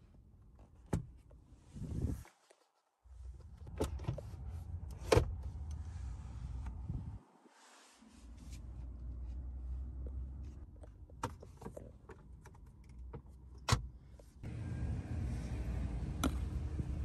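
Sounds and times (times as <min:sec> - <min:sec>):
steady low rumble: 0:04.2 - 0:07.3, 0:14.4 - 0:17.0.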